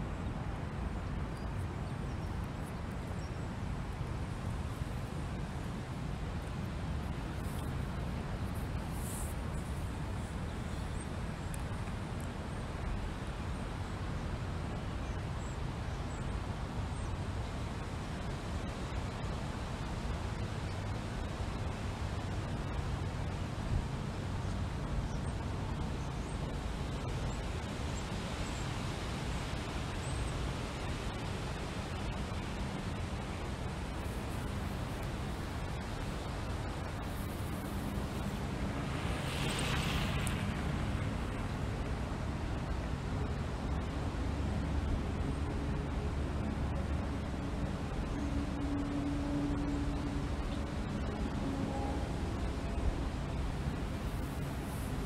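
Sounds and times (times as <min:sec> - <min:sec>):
wind on microphone: 0:23.8 - 0:55.0.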